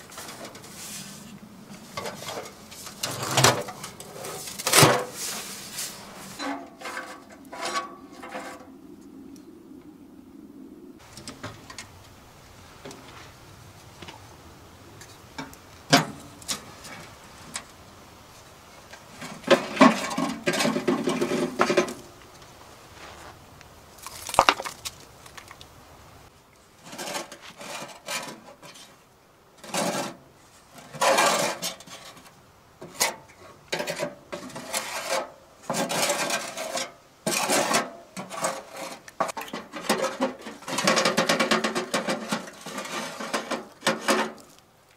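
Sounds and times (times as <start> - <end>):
metal stove clanking and rattling: 39.3 - 44.4.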